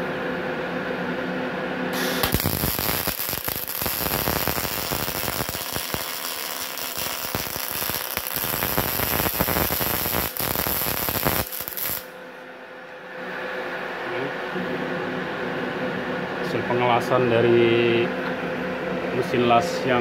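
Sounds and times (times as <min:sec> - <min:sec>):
welding arc crackling: 0:02.0 - 0:12.1.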